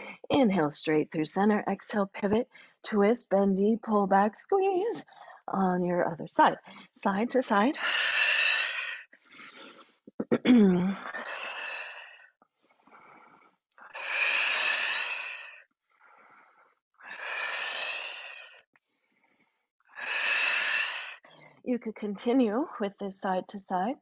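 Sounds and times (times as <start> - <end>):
person breathing: 5.1 - 5.5, 6.6 - 7.0, 7.8 - 10.0, 11.1 - 21.6.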